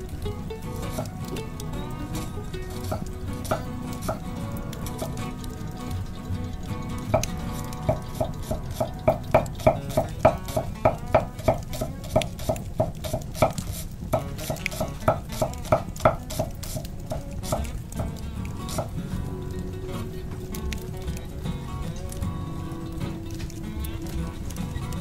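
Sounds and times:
knife chopping on wooden board: 7.9 - 17.7.

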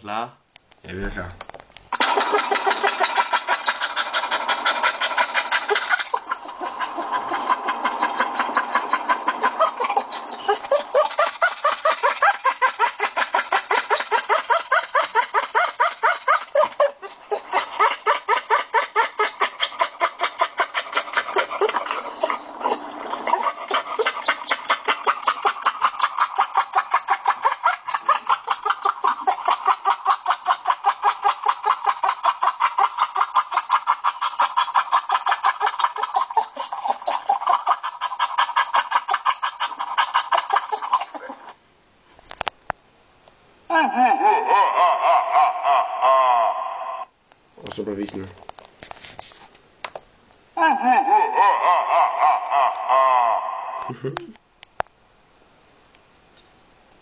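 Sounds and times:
dog yelping whines: 2.0 - 41.6, 50.6 - 53.9.

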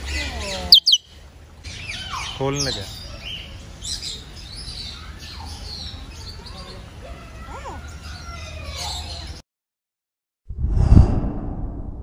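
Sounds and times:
lower gliding bird calls: 0.0 - 1.2
birds chirping: 0.0 - 9.4.

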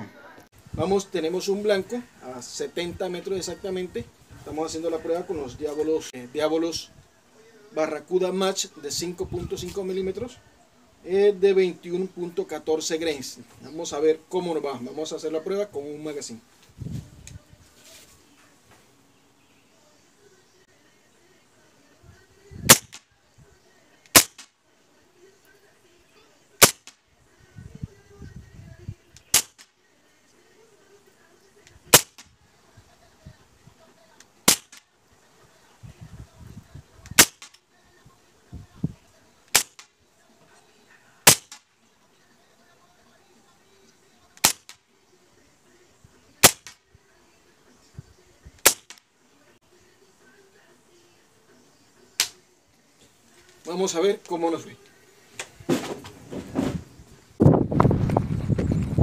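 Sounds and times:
air rifle shots: 22.7 - 23.1, 24.1 - 24.5, 26.6 - 27.0, 29.2 - 29.7, 31.9 - 32.4, 34.4 - 34.8, 37.1 - 37.6, 39.5 - 39.9, 41.3 - 41.7, 44.4 - 44.8, 46.4 - 46.8, 48.6 - 49.0.

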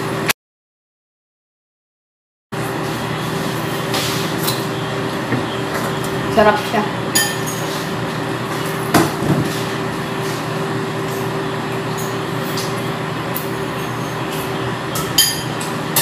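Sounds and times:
steady mechanical hum: 0.0 - 0.3, 2.6 - 16.0.

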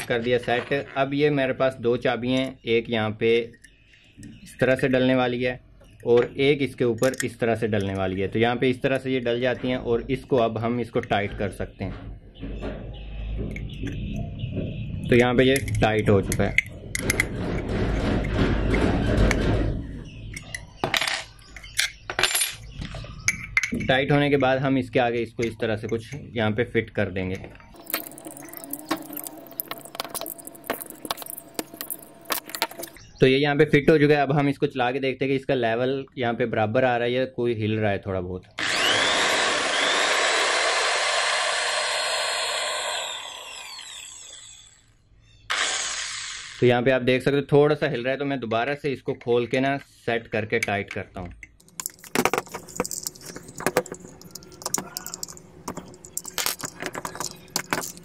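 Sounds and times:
electric drill whining: 38.6 - 46.6
spanner clinking on workbench: 51.6 - 58.0.

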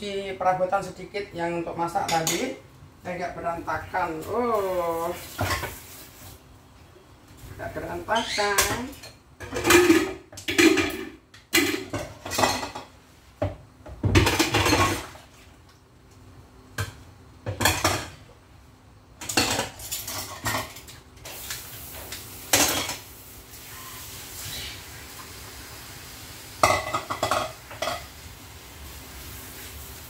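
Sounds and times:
dishes and pans clattering: 8.6 - 15.2, 16.8 - 18.2, 19.2 - 21.0, 22.5 - 23.1, 26.6 - 28.1.

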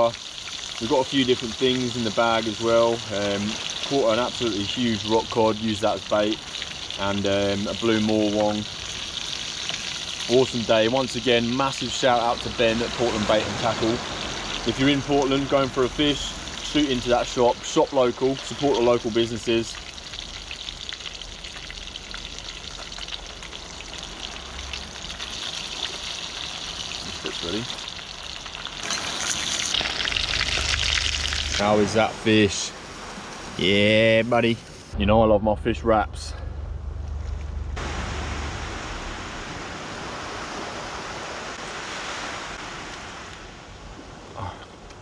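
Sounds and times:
fish sizzling in a pan: 0.0 - 31.8
surf washing onto beach: 9.8 - 19.7, 30.3 - 34.8, 37.8 - 44.4
low rumble: 30.1 - 32.2, 34.9 - 40.4.

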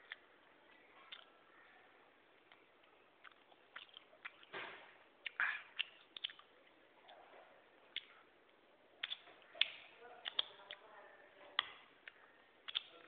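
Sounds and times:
mouth clicks and lip smacks: 1.1 - 1.3, 2.4 - 7.2, 7.9 - 8.2, 9.0 - 10.8, 11.6 - 13.0.

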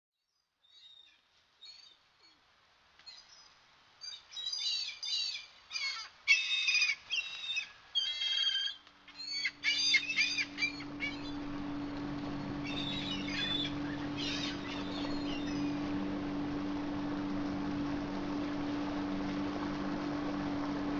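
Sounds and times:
birds chirping: 3.1 - 20.9
outboard motor humming: 9.0 - 20.9.

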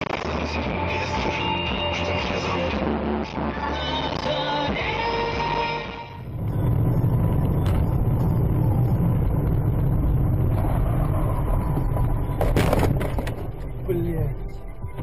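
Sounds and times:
car road and engine rumble: 0.8 - 15.0
sudden sharp crack: 12.4 - 13.4.

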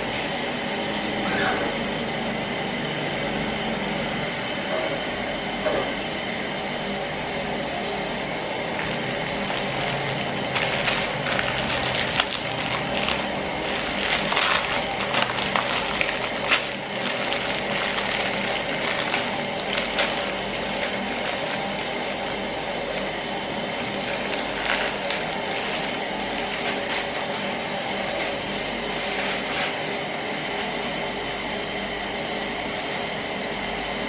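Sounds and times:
dry noodle block crackling: 8.7 - 28.4
plastic packet crinkling: 8.8 - 23.1, 23.8 - 27.2.

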